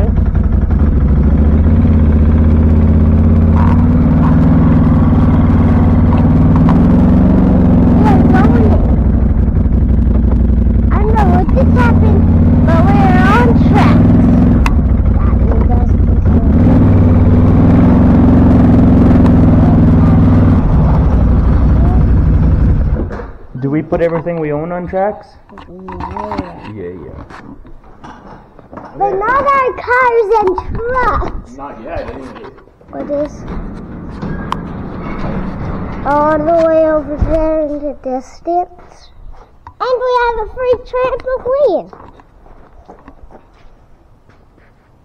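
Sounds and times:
vehicle engine running: 0.0s - 24.2s, 33.0s - 38.6s.

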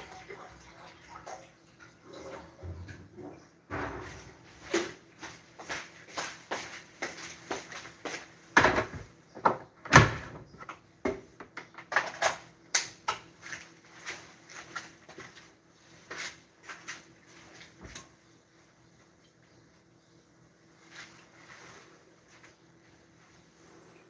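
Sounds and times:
kitchen items knocking and clattering: 2.2s - 5.1s, 8.6s - 12.5s.

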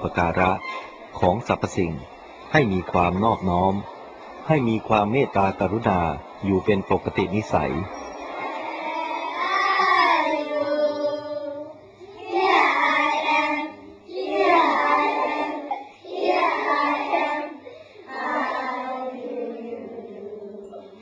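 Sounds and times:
children singing: 0.0s - 21.0s.

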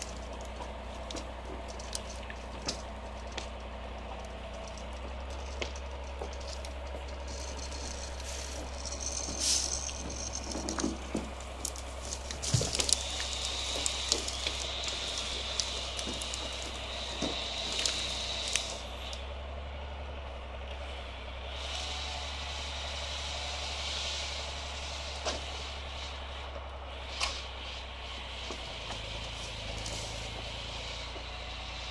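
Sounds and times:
clanks and rattles: 0.0s - 18.8s
truck engine idling: 0.0s - 31.9s.

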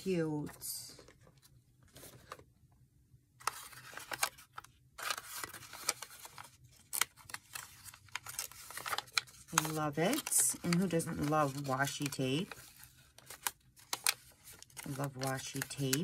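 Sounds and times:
packaging crinkling: 3.4s - 16.0s.

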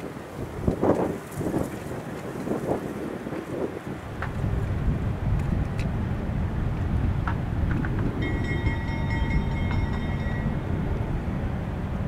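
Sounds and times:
train low rumble: 4.2s - 12.0s
high-pitched metallic squeal: 8.2s - 10.9s.

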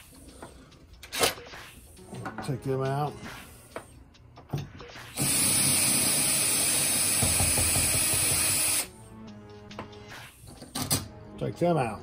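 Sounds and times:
cordless drill running: 5.2s - 8.9s.

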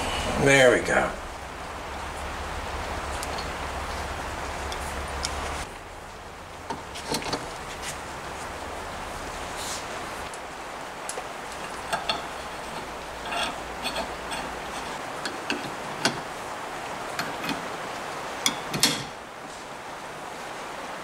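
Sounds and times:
metal clicks of hand tools: 11.6s - 16.3s
wrench clanking on metal: 11.6s - 16.3s, 17.1s - 17.7s, 18.5s - 19.2s.

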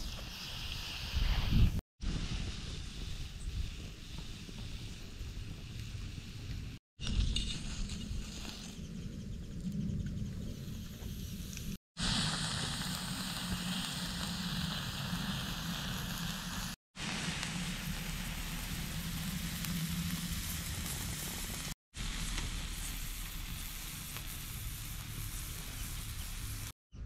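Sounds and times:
embers crackling: 2.1s - 26.8s
meat sizzling on grill: 12.0s - 26.8s.

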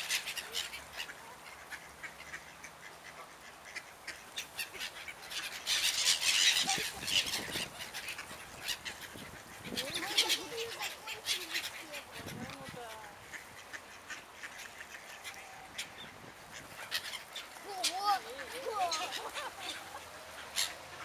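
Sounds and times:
gulls calling: 0.0s - 21.0s.

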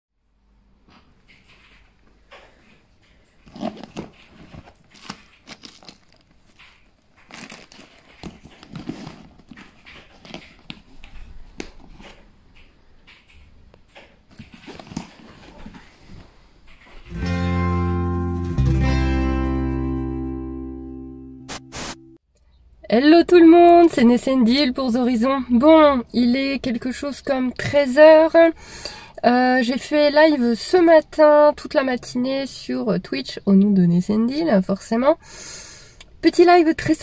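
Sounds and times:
fabric bag rustling: 3.4s - 12.3s
loud music with low notes: 17.1s - 22.2s.

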